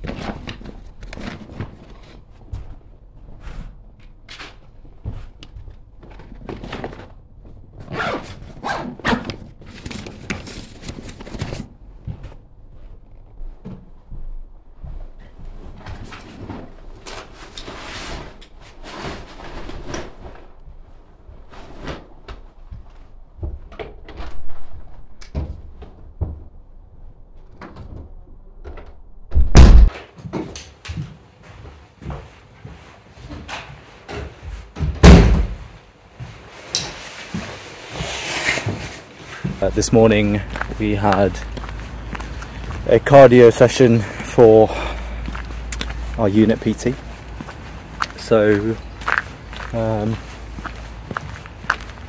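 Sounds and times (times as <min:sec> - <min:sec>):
loud heavy thump: 0:29.3 - 0:29.9, 0:34.9 - 0:35.6.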